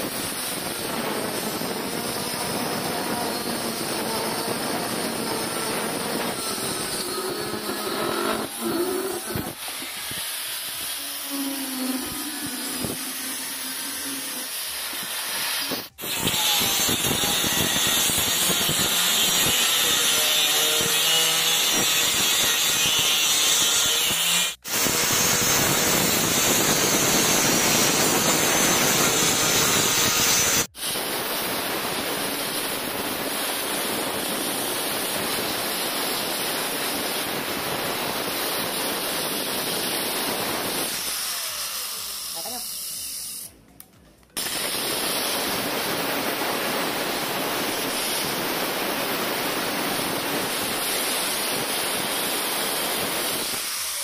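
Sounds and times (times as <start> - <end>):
angle grinder grinding steel: 0.0 - 31.0.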